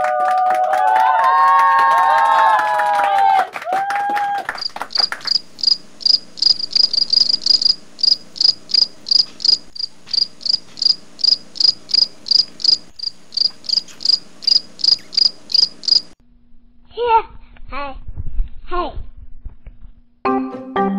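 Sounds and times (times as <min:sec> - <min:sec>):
cricket chirping: 0:04.6 - 0:16.2.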